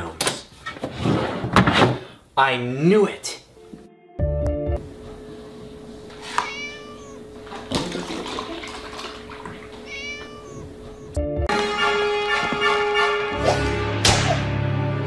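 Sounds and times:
kitten meowing: 6.2s - 7.4s, 9.4s - 11.2s
milk pouring into plastic tub: 7.5s - 9.8s
music with held note: 11.4s - 15.0s.

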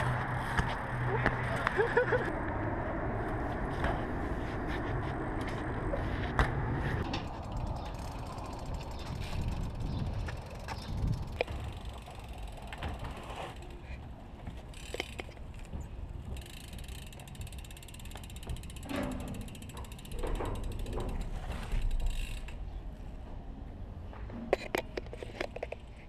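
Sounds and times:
bike hub ratchet clicking: 7.3s - 13.7s, 14.7s - 15.4s, 16.3s - 22.6s.

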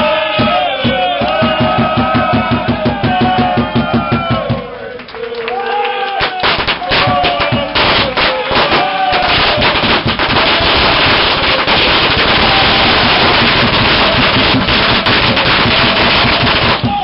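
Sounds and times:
crowd singing: 0.0s - 5.6s, 6.8s - 17.0s
firecrackers crackling: 6.2s - 17.0s.

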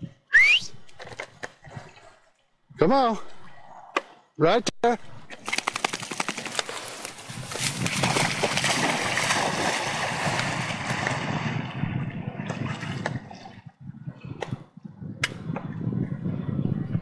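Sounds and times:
dog splashing and swimming: 5.2s - 13.7s.

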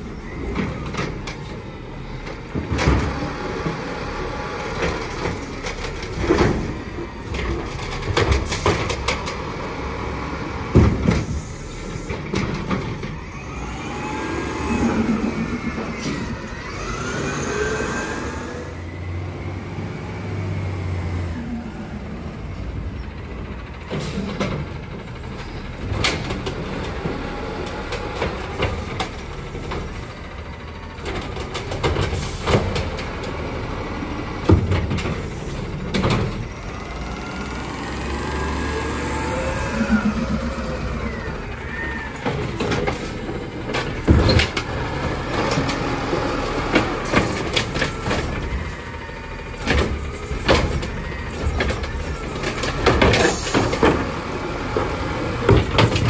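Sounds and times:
hydraulic arm whining: 11.3s - 18.9s, 36.6s - 44.7s
truck engine revving: 12.9s - 20.8s, 36.4s - 51.5s.

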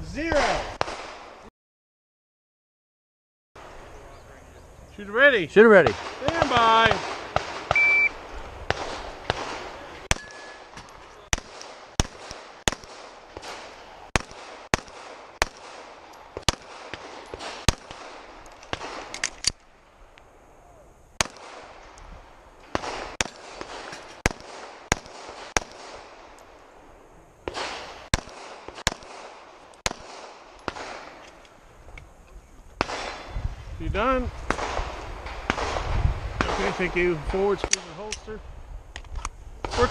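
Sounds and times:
pistol shots: 5.8s - 19.6s, 21.2s - 21.9s, 22.6s - 26.6s, 27.4s - 31.4s, 32.8s - 33.3s, 34.5s - 38.1s.

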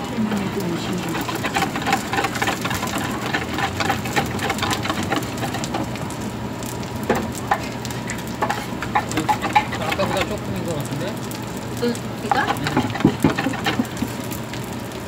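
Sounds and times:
pancakes sizzling in frying pans: 0.0s - 15.0s
whisk beating batter in plastic bowl: 0.8s - 6.1s, 8.4s - 11.0s, 12.3s - 14.3s
metal spatula clicks and scrapes: 1.0s - 6.0s, 7.4s - 10.4s, 12.3s - 14.2s.

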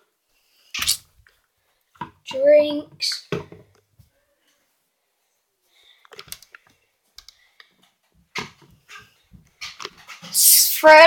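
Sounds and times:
small objects clicking and knocking: 6.0s - 10.5s.

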